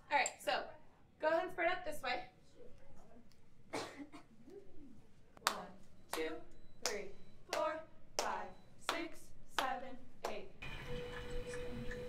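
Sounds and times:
hands clapping a steady beat: 5.4 - 10.4.

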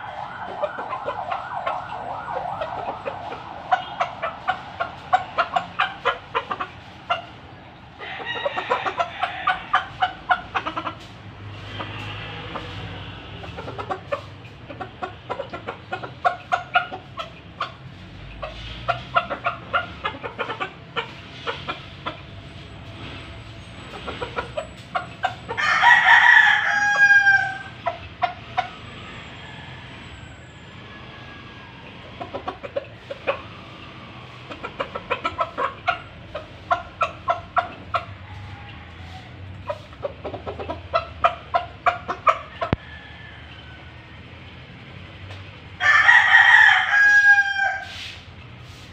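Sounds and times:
rooster crowing: 0.0 - 6.1, 8.0 - 10.2, 25.4 - 27.8, 38.2 - 39.4, 42.5 - 44.4, 45.8 - 48.0
rooster clucking: 0.0 - 48.9.

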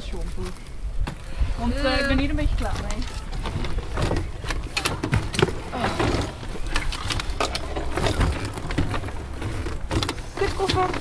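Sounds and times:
wind rumble on microphone: 0.0 - 11.0
bags rattling while packed: 2.6 - 11.0.

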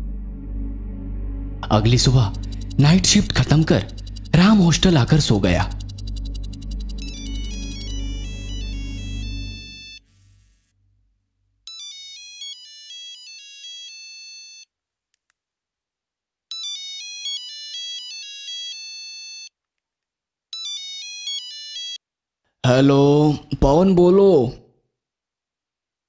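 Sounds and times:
background music: 0.0 - 10.5
mobile phone ringtone: 1.6 - 10.0, 11.7 - 14.7, 16.5 - 19.6, 20.5 - 22.0.

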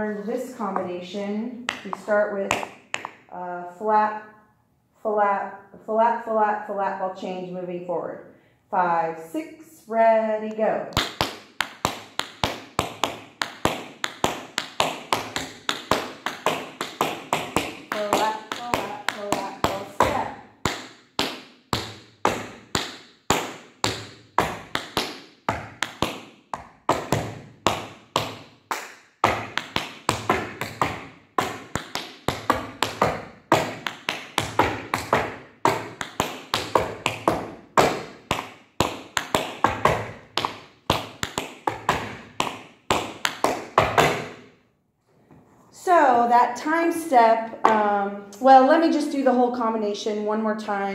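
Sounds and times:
tap shoes on wooden floor: 0.6 - 1.0, 1.6 - 3.2, 11.0 - 44.4.

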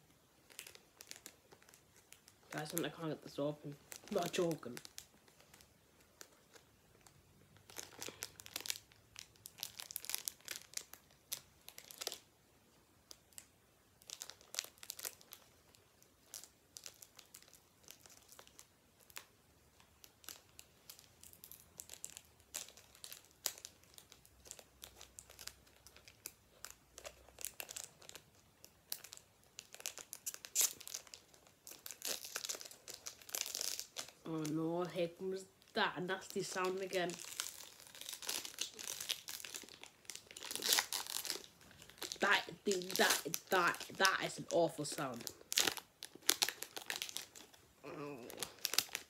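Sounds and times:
foil wrapper crinkling and tearing: 0.0 - 34.7, 35.6 - 49.0.

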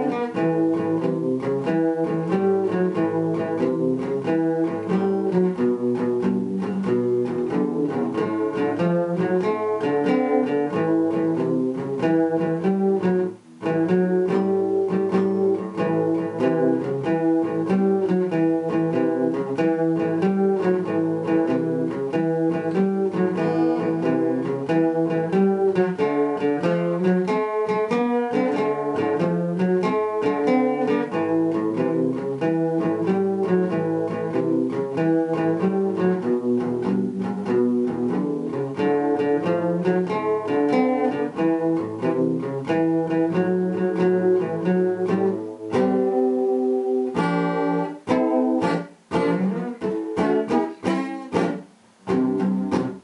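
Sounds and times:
acoustic guitar picking: 0.0 - 53.0.

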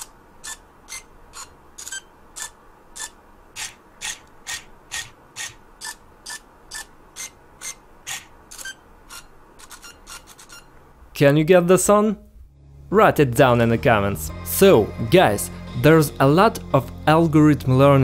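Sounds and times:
robotic cube motor whirring clicks: 0.0 - 10.6.

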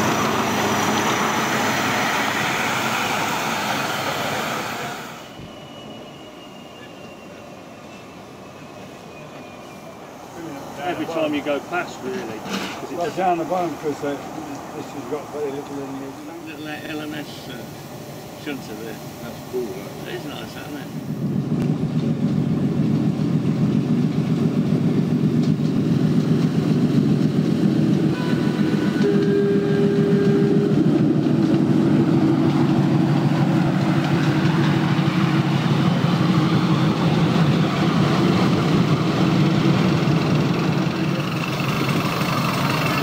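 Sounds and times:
miniature locomotive engine rumble: 9.2 - 43.0.

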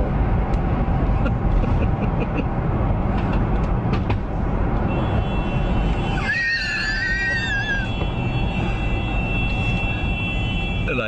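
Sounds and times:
car road and engine rumble: 0.0 - 11.0
car horn sounding: 4.8 - 11.0
high wavering squeal: 6.2 - 7.9.

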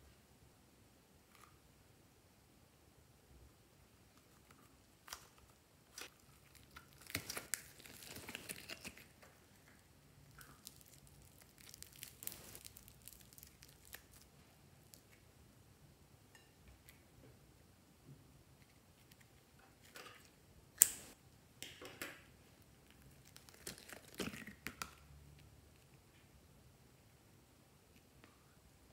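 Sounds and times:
slime crackling: 5.9 - 9.3, 10.2 - 15.1, 23.0 - 24.9.

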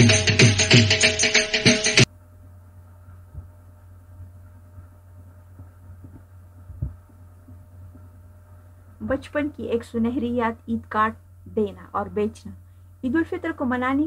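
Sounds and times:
background music: 0.0 - 2.1
faint low hum: 2.1 - 14.0
soft thumps: 5.5 - 8.1.

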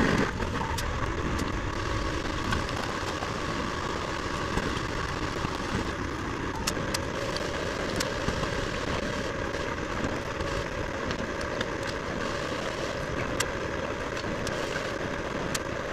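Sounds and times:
machinery engine running: 0.0 - 15.9.

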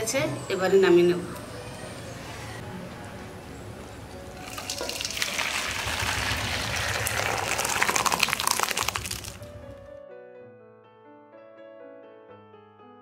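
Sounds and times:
bubbling pot pops and splashes: 4.5 - 9.6.

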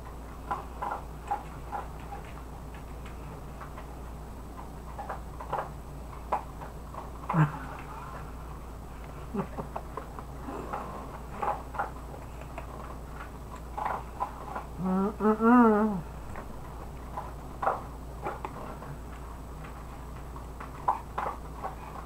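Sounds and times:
person humming: 7.3 - 8.1, 14.8 - 16.1.

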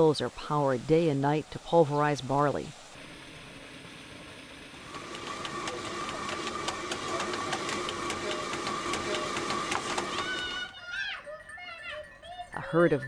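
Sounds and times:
stone mill hum: 2.8 - 10.7
feeder shoe ticking against millstone: 5.0 - 10.7.

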